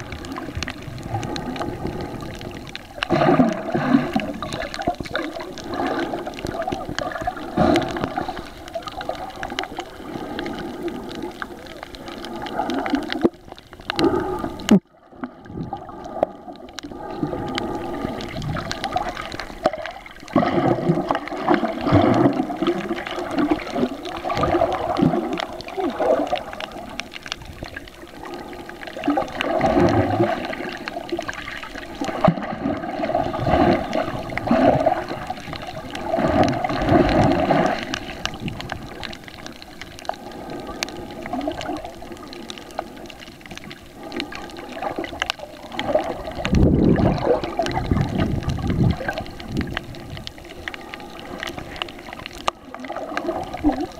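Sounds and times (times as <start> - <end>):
muffled underwater sloshing: 0.0 - 53.9.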